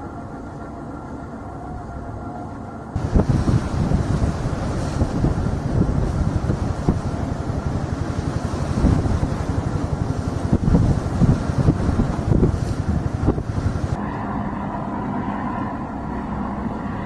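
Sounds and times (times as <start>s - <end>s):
boat engines rumbling: 0.0s - 17.0s
wind buffeting microphone: 2.9s - 17.0s.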